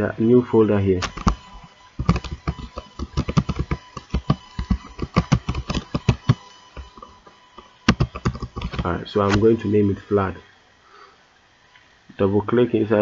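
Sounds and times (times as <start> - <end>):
computer keyboard typing: 1.0 - 9.5.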